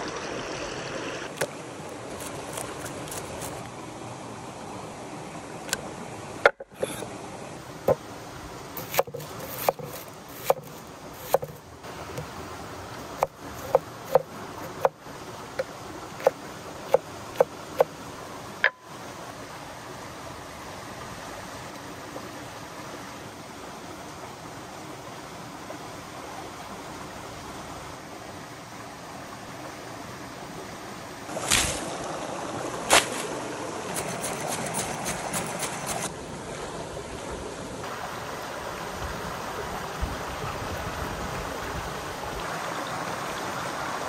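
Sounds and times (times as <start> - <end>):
shallow rocky stream rushing: 0.0 - 44.0
cleaver chopping on wooden board: 8.8 - 11.6, 13.2 - 15.0.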